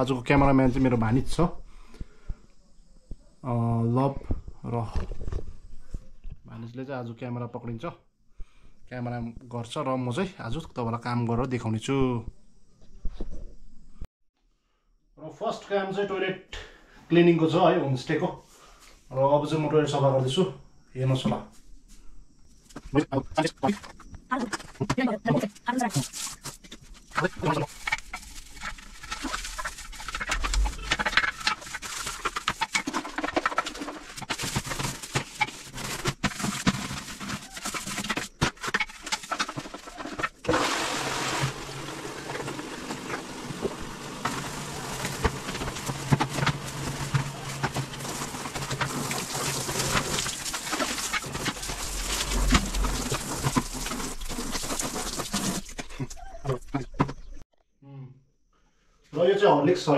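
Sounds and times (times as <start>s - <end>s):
toilet brush scrubbing bowl: 25.8s - 55.9s
plastic bottle clatter: 25.9s - 41.6s, 42.4s - 56.2s.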